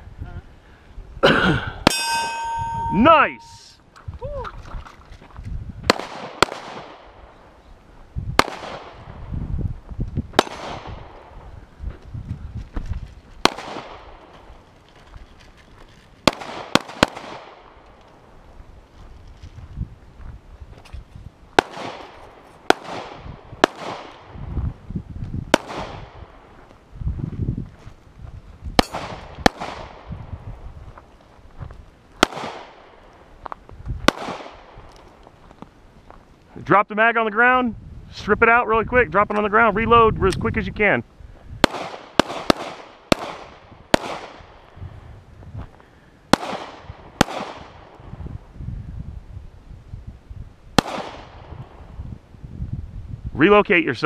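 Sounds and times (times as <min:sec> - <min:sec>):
pistol shots with echo: 0:05.9 - 0:07.2, 0:08.4 - 0:09.0, 0:10.4 - 0:11.3, 0:13.4 - 0:14.2, 0:16.3 - 0:17.8, 0:21.6 - 0:24.3, 0:25.5 - 0:26.4, 0:28.8 - 0:30.1, 0:32.2 - 0:32.9, 0:34.1 - 0:34.8, 0:41.6 - 0:44.6, 0:46.3 - 0:47.9, 0:50.8 - 0:51.5.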